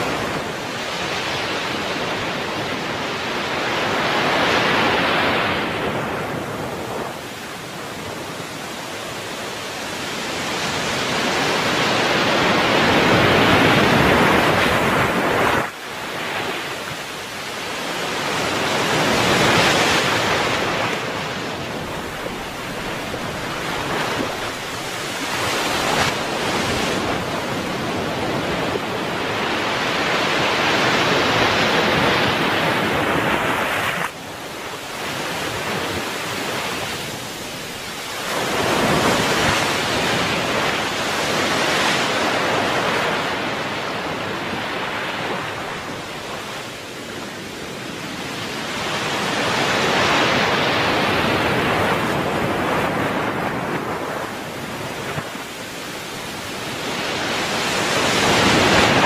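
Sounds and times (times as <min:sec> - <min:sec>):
small waves breaking on beach: 0:00.0 - 0:59.0.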